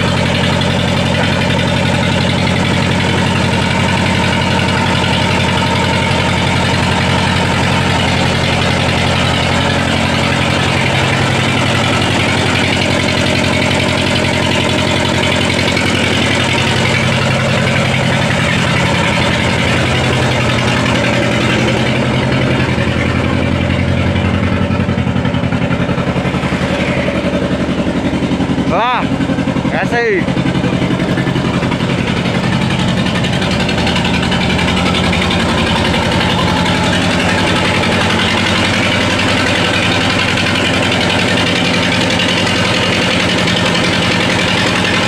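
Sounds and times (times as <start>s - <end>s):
diesel engine running: 0.0s - 45.0s.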